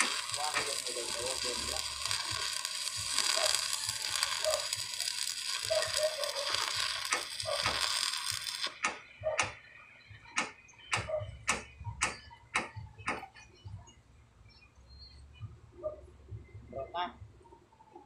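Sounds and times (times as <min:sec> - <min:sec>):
arc welding crackling and hissing: 0:00.0 - 0:09.6.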